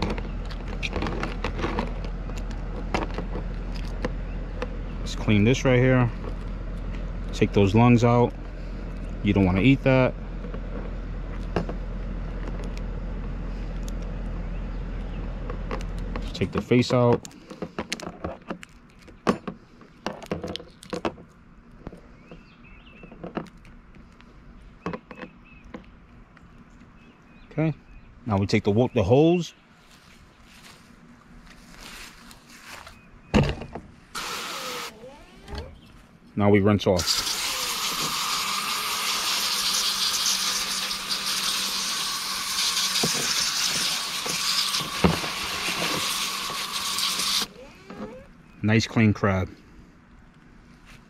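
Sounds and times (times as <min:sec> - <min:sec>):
hose nozzle spraying water: 0:34.2 - 0:35.0, 0:37.0 - 0:47.5.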